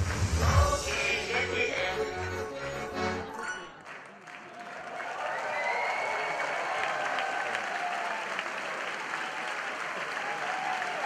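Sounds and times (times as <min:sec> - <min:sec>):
audience applauding: 0:03.7 - 0:11.0.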